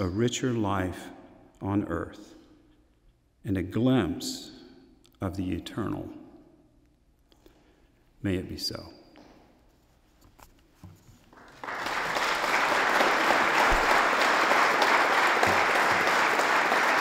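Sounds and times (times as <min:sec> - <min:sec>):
audience applause: 0:11.3 - 0:17.0.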